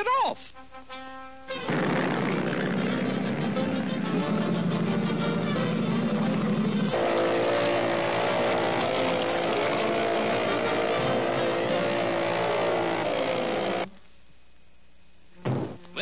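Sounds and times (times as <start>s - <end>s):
cartoon speedboat motor: 1.5s - 13.9s
water rushing: 5.6s - 13.9s.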